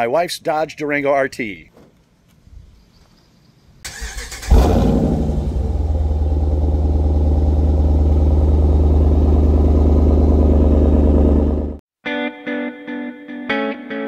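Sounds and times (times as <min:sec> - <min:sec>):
engine cranking and idling: 0:03.9 - 0:11.8.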